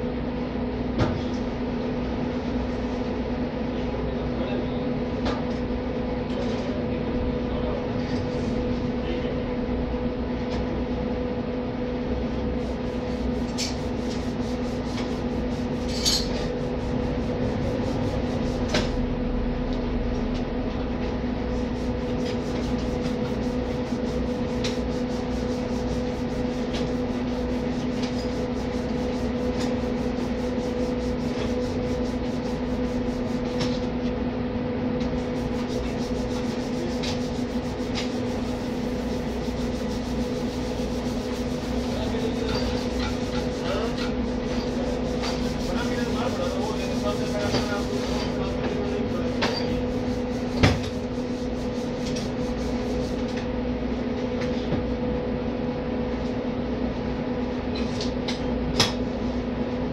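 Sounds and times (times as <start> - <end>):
steady machine hum: 0.0 - 59.9.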